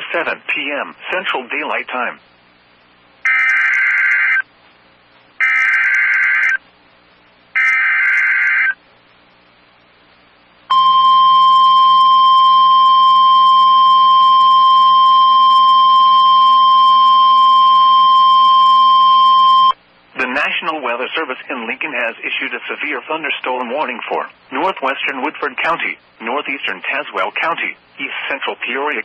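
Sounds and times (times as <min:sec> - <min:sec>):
steady warning alarm tone: 0:03.3 - 0:04.4, 0:05.4 - 0:06.6, 0:10.7 - 0:19.8.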